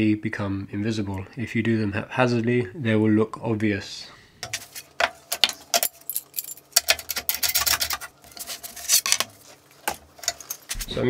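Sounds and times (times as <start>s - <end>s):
metal clamps clinking: 5.3s - 9.2s, 9.9s - 10.9s
wood panels knocking and scraping: 6.8s - 11.0s.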